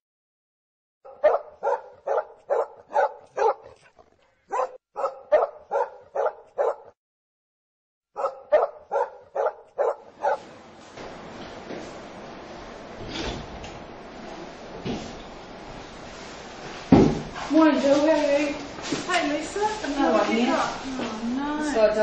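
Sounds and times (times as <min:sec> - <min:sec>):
dog barking: 0:01.0 - 0:03.8, 0:04.5 - 0:07.0, 0:08.2 - 0:10.4.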